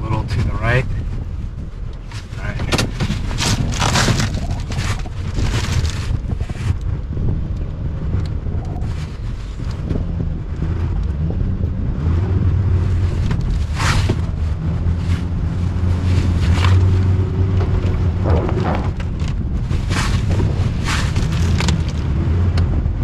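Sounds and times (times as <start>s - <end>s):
car engine under load: 0.0s - 23.0s
wind buffeting microphone: 0.0s - 23.0s
tyre churning through snow: 2.2s - 6.6s, 18.1s - 22.1s
sharp crunches: 2.2s - 6.7s, 17.9s - 22.1s.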